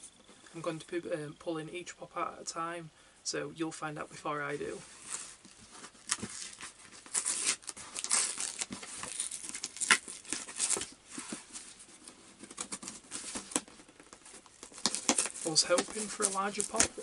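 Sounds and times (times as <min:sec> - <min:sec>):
cardboard ripping and crinkling: 0:04.9 - 0:17.0.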